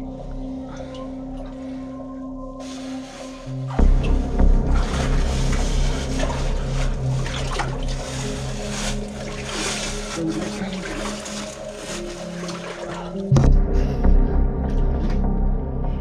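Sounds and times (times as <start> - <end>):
background music drone: 0.0 - 16.0
footsteps splashing through water: 3.8 - 13.3.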